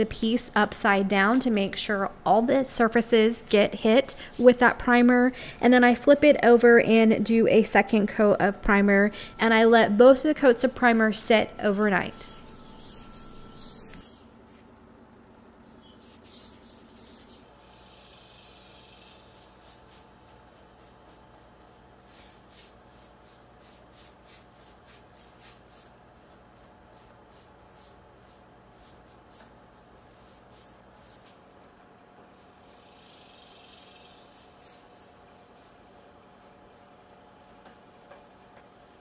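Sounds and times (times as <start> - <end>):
low steady hum: 0.0 - 39.0
paintbrush swishes: 11.6 - 14.7.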